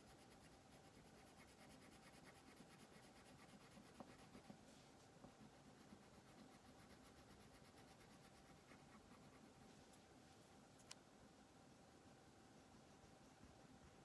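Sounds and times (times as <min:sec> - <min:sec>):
crayon scratching on paper: 0:00.0 - 0:04.6, 0:05.4 - 0:09.6
light ticks: 0:10.8 - 0:11.0.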